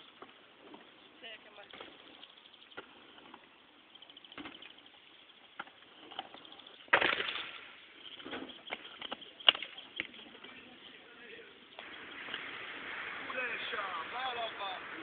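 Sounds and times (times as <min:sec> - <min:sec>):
inline skates clacking on concrete: 0:05.6 - 0:10.9
skates scraping rattle: 0:06.0 - 0:15.0
skates landing with loud hit: 0:06.9 - 0:07.7.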